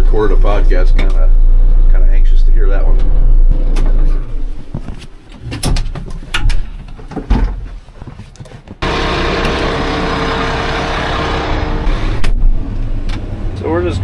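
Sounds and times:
loader engine rumble: 0:00.0 - 0:14.0
knocks and clicks in cab: 0:04.7 - 0:07.8
tractor running steadily: 0:08.8 - 0:13.8.

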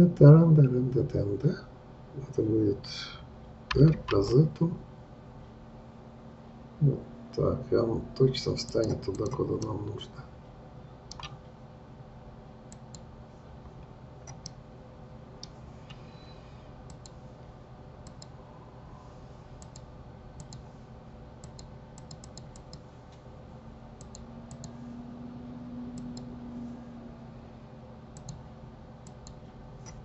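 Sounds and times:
low steady hum: 0:00.0 - 0:30.0
mouse and keyboard clicking: 0:11.1 - 0:11.4, 0:21.4 - 0:22.8.

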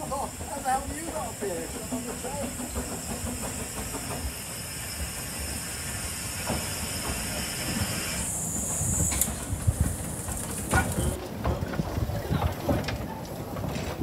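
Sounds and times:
steam hissing: 0:00.0 - 0:11.2
train wheels rumbling and clicking: 0:00.0 - 0:14.0.

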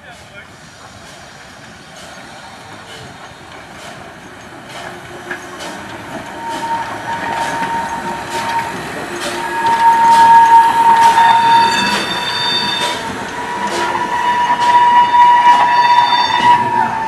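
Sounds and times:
train rolling past: 0:00.0 - 0:17.0
high squeal: 0:06.3 - 0:17.0.

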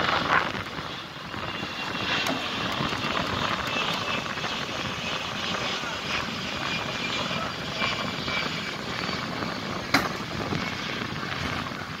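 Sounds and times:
wind buffeting microphone: 0:00.0 - 0:12.0
heavy machinery engine running: 0:00.1 - 0:12.0.

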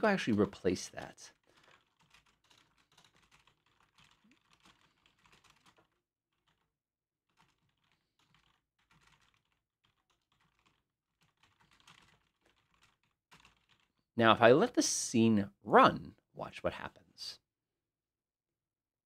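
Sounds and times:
faint keyboard typing: 0:00.0 - 0:14.1.

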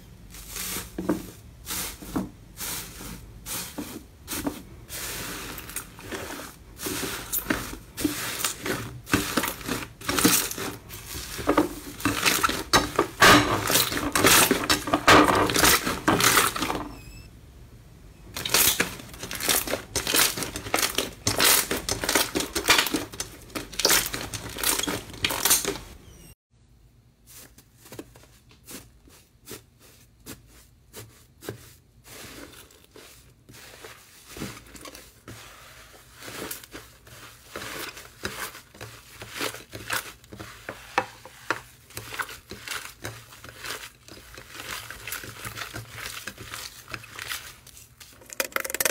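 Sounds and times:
foil flakes crinkling: 0:02.6 - 0:16.9, 0:18.3 - 0:26.0, 0:41.5 - 0:48.9.

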